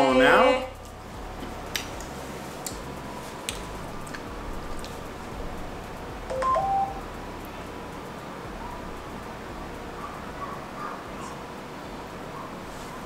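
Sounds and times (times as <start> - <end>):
low hiss: 0.0 - 13.0
short electronic beep: 6.3 - 7.0.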